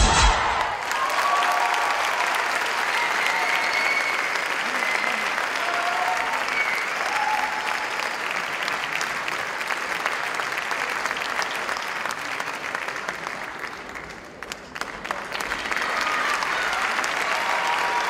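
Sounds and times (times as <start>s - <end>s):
audience applauding: 0.3s - 18.0s.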